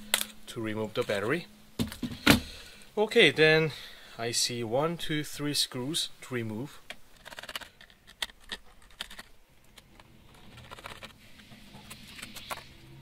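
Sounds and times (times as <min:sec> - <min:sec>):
screwdriver scraping plastic: 0:07.2 - 0:12.8.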